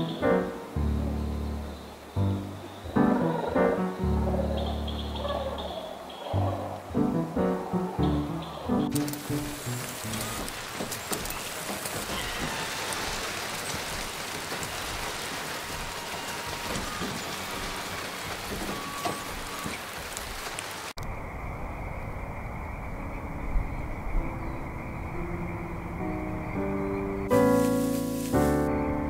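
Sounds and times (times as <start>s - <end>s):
soft music notes: 0.0s - 10.6s, 23.5s - 29.0s
heavy rain: 0.0s - 21.0s, 27.2s - 28.8s.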